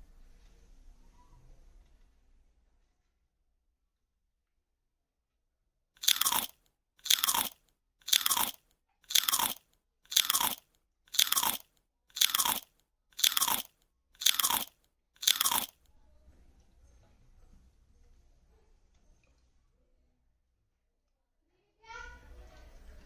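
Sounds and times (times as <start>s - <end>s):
crunching bites into watermelon: 6.0s - 15.8s.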